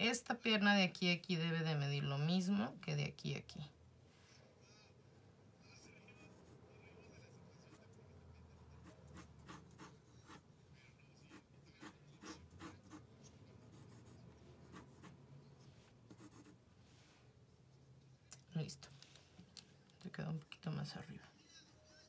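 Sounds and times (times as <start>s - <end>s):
drawing tool scratching paper: 8.8s - 10.4s, 11.3s - 13.1s.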